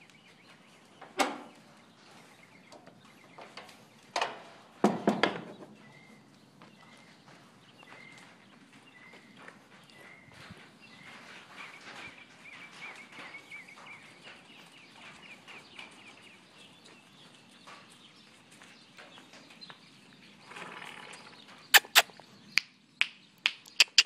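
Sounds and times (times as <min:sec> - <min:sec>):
horse hooves on dirt: 0:00.0 - 0:22.6
bird chirping: 0:05.5 - 0:24.0.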